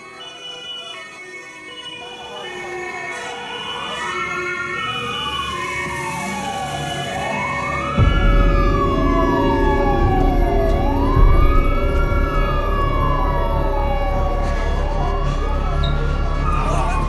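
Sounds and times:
wailing siren: 0.0 - 17.0
loud low rumble: 8.0 - 17.0.

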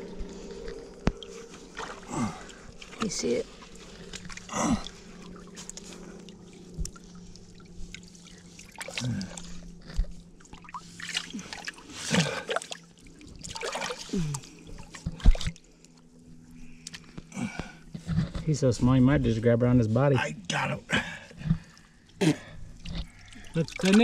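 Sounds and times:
water splashes: 0.0 - 15.6, 21.6 - 24.0
river water sloshing: 0.0 - 17.0, 21.6 - 24.0.

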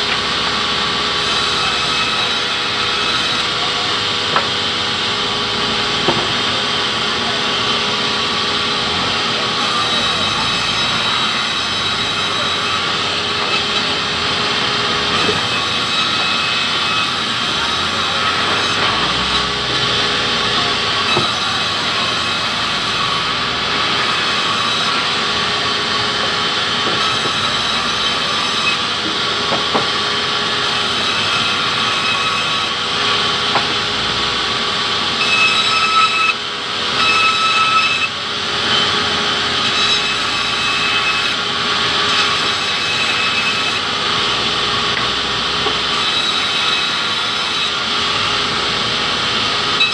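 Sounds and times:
band saw ripping log: 9.5 - 25.3.

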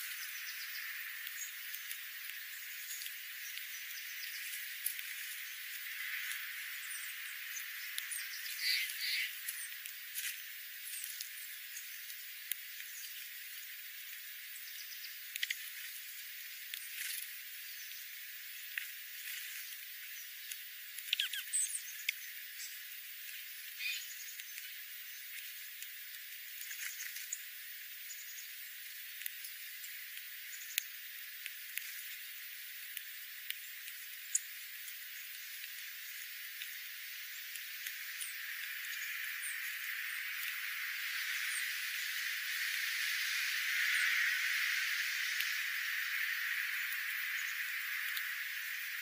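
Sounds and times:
birds ticking on gravel: 0.0 - 49.0
steady hiss: 0.0 - 49.0
bird chip call: 8.4 - 9.4, 21.1 - 21.8, 23.8 - 24.1.

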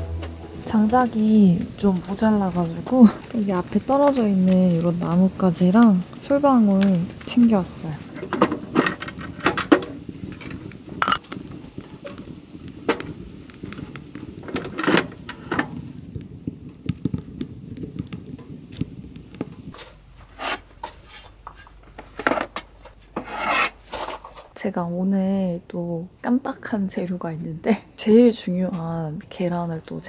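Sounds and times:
twigs and kindling scraped and cracking: 1.7 - 24.6.

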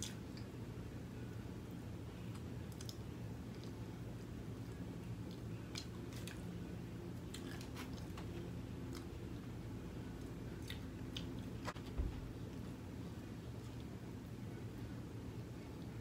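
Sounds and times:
low background hum: 0.0 - 16.0
person chewing crunchy food: 7.2 - 9.1.

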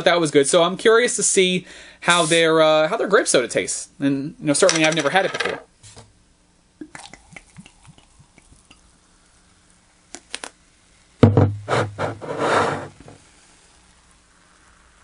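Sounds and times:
short hiss: 1.7 - 2.6, 11.6 - 15.0
soda pouring into plastic cup: 6.8 - 10.4
soda fizzing: 6.8 - 11.2, 13.1 - 15.0
glass bottle knocking on desk: 11.2 - 11.9.

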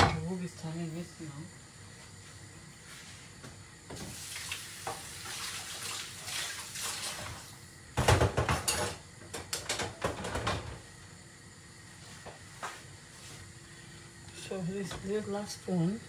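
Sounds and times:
loud clatter of pots: 8.0 - 10.8
metal pots and utensils clinking: 8.4 - 9.0.

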